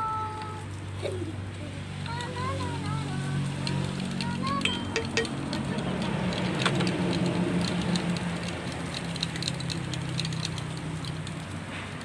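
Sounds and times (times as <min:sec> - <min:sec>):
traffic engine hum: 0:00.0 - 0:12.0
plastic cups and caps clicking: 0:03.6 - 0:11.4.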